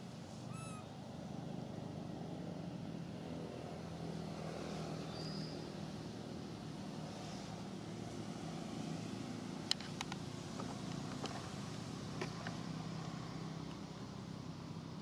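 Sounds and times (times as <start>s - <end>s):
vehicle engine humming: 0.0s - 4.5s.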